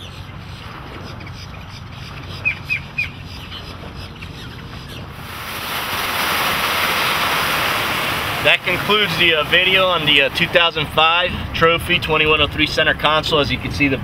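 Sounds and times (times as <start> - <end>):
birds chirping: 0.0 - 5.6
outboard motor humming: 0.0 - 14.0
wind and water rushing: 0.0 - 14.0.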